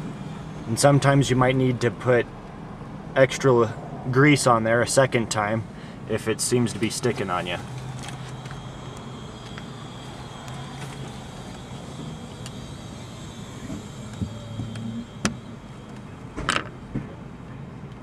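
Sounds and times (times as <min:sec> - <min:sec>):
low hum: 0:00.0 - 0:04.2, 0:05.4 - 0:17.7.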